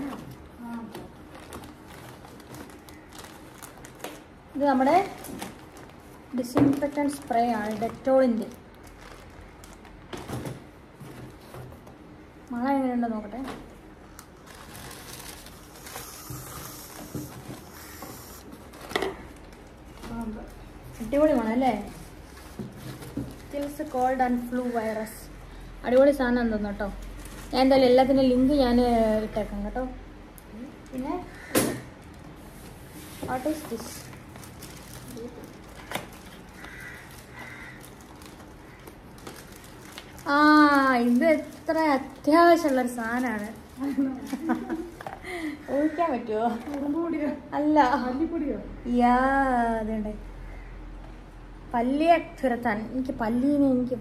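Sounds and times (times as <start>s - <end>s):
room noise: 0.0s - 54.0s
distant crow caws: 31.2s - 32.0s, 35.8s - 39.2s, 45.6s - 46.3s, 50.4s - 51.2s.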